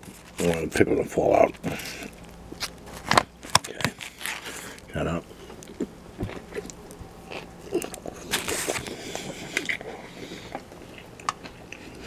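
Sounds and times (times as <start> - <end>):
person chewing sandwich: 1.5 - 12.0.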